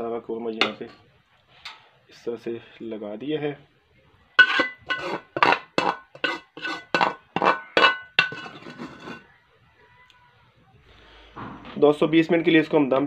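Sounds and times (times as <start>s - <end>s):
metal utensil clinking on pot: 0.6s - 1.0s, 4.4s - 9.2s.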